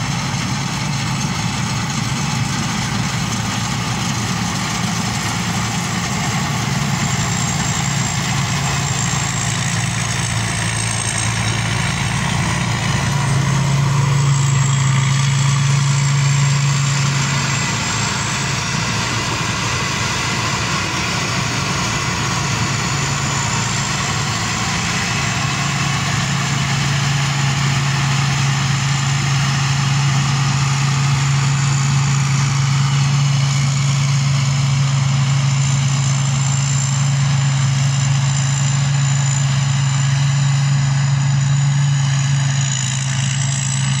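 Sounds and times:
combine harvester engine drone: 0.0 - 44.0
high machinery whine: 0.0 - 44.0.

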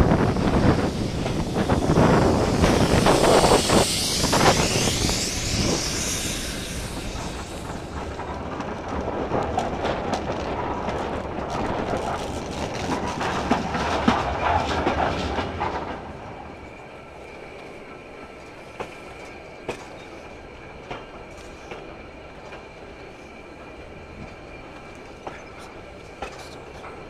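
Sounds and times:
loud rushing hiss: 0.0 - 8.3
train wheels clicking over rail joints: 0.0 - 27.0.

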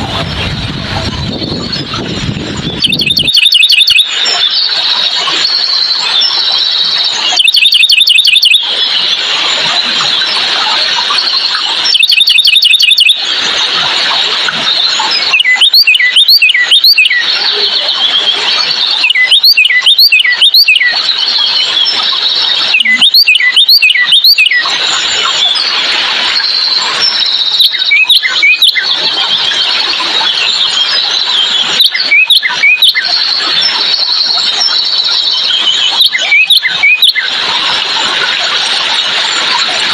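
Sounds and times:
high-pitched bird chorus: 1.2 - 10.4, 11.0 - 13.5, 14.7 - 37.4
sharp sweeping bird chirps: 1.2 - 10.4, 11.1 - 13.4, 14.7 - 37.4
bird trill: 2.6 - 9.2, 11.2 - 13.3, 14.7 - 25.7, 26.4 - 37.3.

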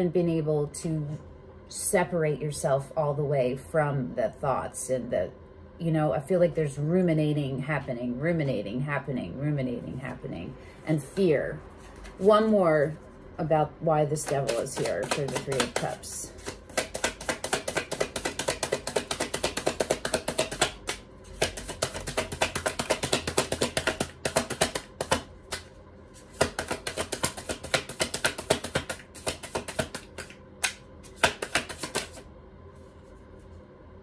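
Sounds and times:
cards being shuffled: 14.2 - 32.2.

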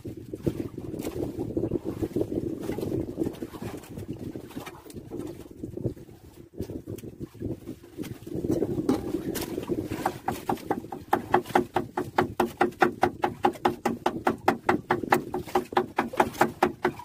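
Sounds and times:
knife chopping on wooden board: 10.0 - 17.0.

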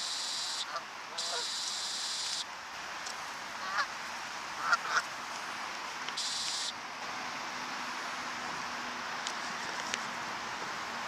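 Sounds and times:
geese honking: 0.0 - 2.4, 3.6 - 3.9, 4.6 - 5.1.

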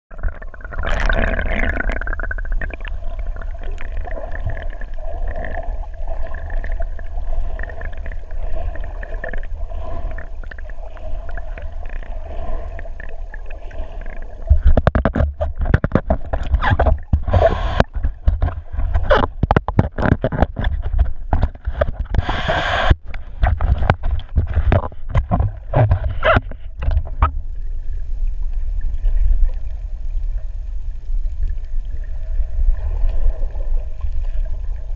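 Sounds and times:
underwater bubbling: 0.1 - 34.9
underwater rumble of moving water: 0.1 - 34.9
underwater knocks: 14.5 - 22.4, 23.4 - 27.4.

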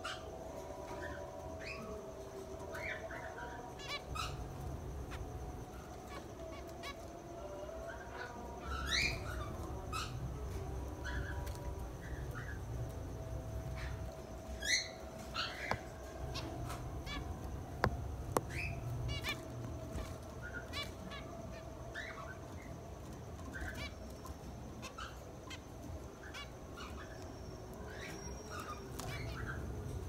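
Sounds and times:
finches calling: 7.8 - 30.0.

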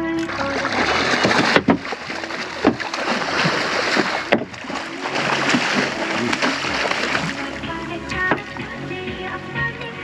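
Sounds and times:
shark thrashing and splashing water: 0.2 - 8.6
sharp knocks: 1.2 - 3.1, 3.9 - 4.8.

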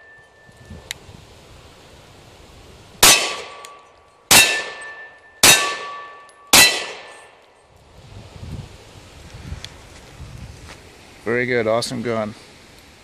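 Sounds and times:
pistol shots: 3.0 - 7.3.

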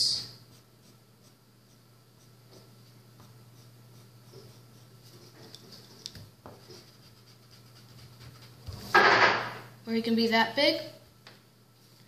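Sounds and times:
pencil scratching on paper: 0.4 - 8.9.

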